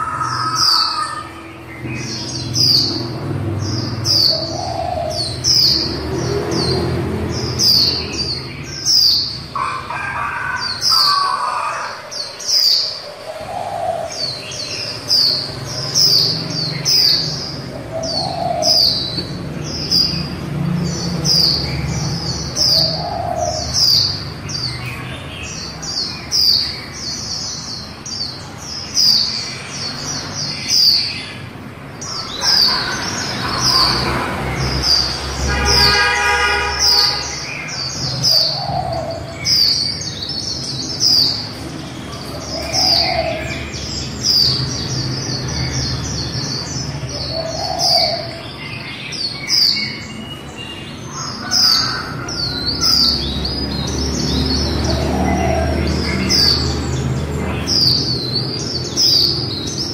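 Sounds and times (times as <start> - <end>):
lower bird call: 0.0 - 2.9
bird twittering high chirps: 0.0 - 59.9.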